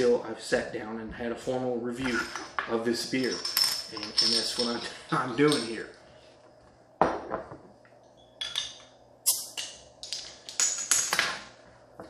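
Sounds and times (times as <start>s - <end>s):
glass clinking: 3.3s - 5.8s, 8.2s - 9.8s.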